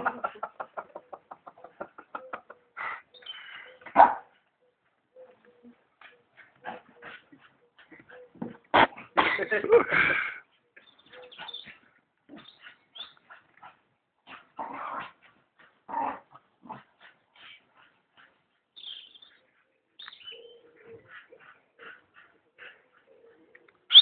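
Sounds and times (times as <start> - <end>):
dogs fighting: 6.0 - 10.2, 10.8 - 18.5, 20.9 - 23.9.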